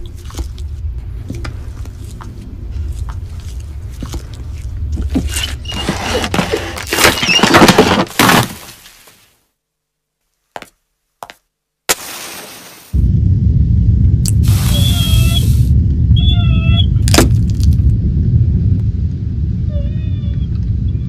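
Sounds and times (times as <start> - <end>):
low rumble: 0.0 - 6.8, 13.0 - 21.0
clatter of cracks and thuds: 5.9 - 8.8.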